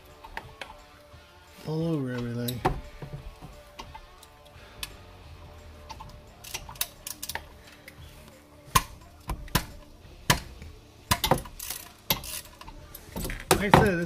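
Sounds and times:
ratchet clicking: 0:05.8 - 0:08.0, 0:08.7 - 0:13.6.

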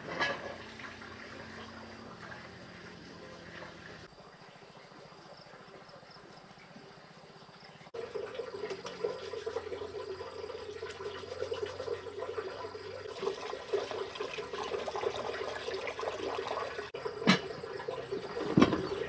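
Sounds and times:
dishes clinking: 0:00.0 - 0:00.8, 0:17.2 - 0:17.6
water sloshing and splashing: 0:00.0 - 0:04.2, 0:07.9 - 0:19.0.

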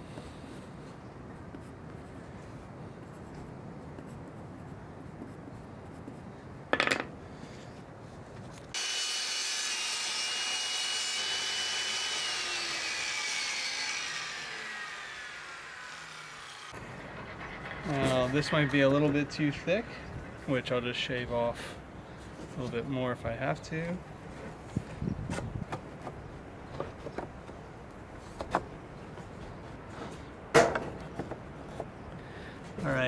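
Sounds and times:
table saw whining: 0:08.7 - 0:19.7.

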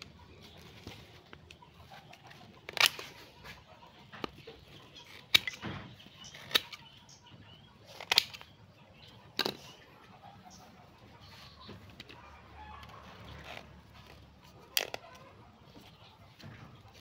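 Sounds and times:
pruning shears snipping roots: 0:02.2 - 0:03.2, 0:04.2 - 0:07.0, 0:07.9 - 0:08.6.

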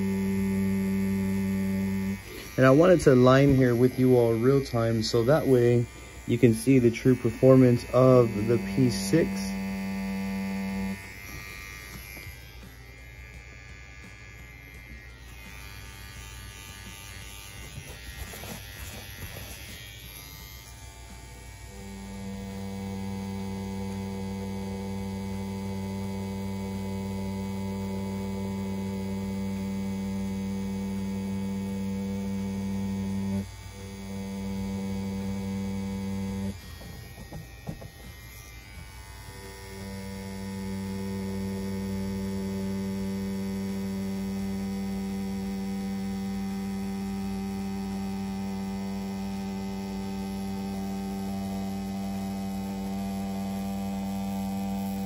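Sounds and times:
tattoo pen humming: 0:00.0 - 0:55.0.

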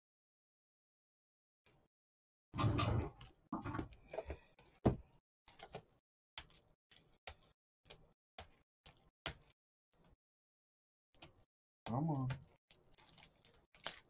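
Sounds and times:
plastic wrap crinkling: 0:12.7 - 0:14.0.

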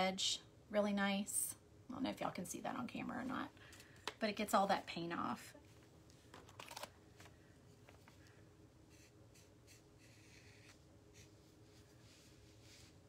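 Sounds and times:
faint steady hum: 0:00.0 - 0:13.0
marker scratching on wood: 0:08.9 - 0:11.8.

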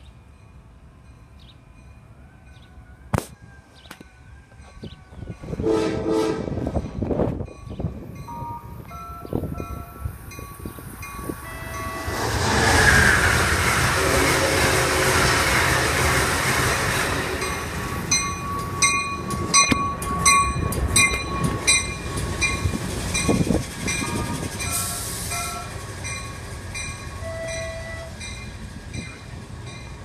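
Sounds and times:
diesel locomotive passing: 0:00.0 - 0:30.0
train wheel clicks on rail joints: 0:18.1 - 0:24.8.

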